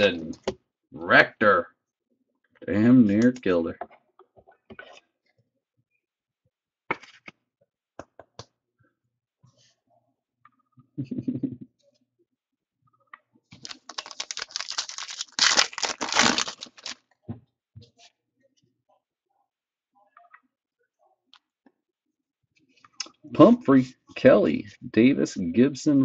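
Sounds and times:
foil wrapper tearing and crinkling: 0:13.6 - 0:17.0.

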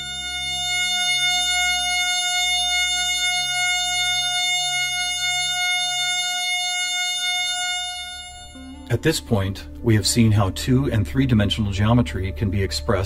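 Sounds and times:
pulsing low notes: 0:00.0 - 0:13.0
sustained major chord: 0:00.0 - 0:13.0.

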